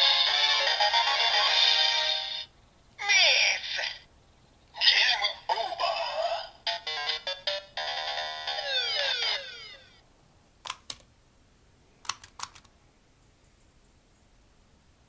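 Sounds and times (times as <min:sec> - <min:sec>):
chiptune jingle from toy speaker: 0:06.6 - 0:10.0
toy electronic beeps: 0:06.7 - 0:10.0
plastic toy clicks: 0:10.6 - 0:11.1, 0:12.0 - 0:12.7.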